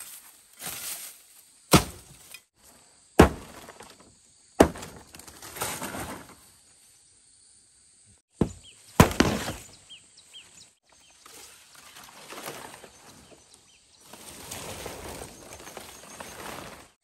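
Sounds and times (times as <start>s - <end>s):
insects droning: 0.0s - 17.0s
small birds chirping: 8.0s - 16.9s.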